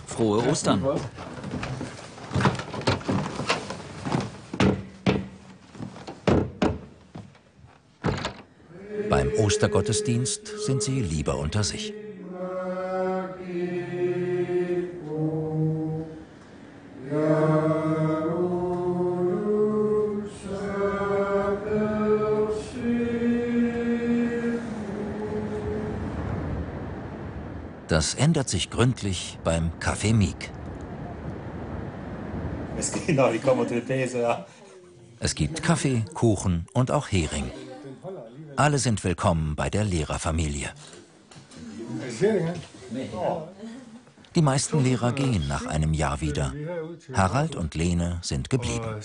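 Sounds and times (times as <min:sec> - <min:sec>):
footsteps: 0:00.4 - 0:08.4
door knocks and thuds: 0:02.4 - 0:03.4, 0:04.6 - 0:07.4, 0:08.0 - 0:08.5
congregation singing a hymn: 0:08.7 - 0:27.4.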